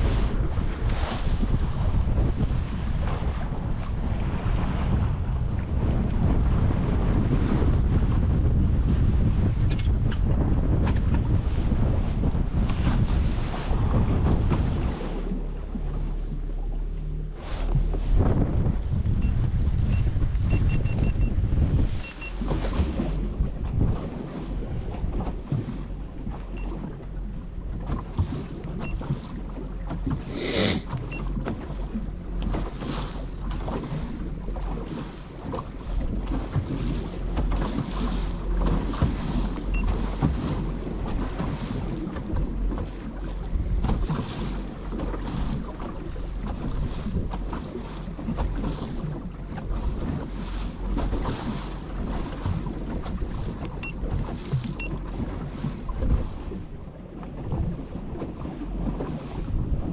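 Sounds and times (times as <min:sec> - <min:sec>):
steady low rumble: 0:00.0 - 0:44.9
water lapping against hull: 0:00.0 - 0:59.9
wind on microphone: 0:00.0 - 0:59.9.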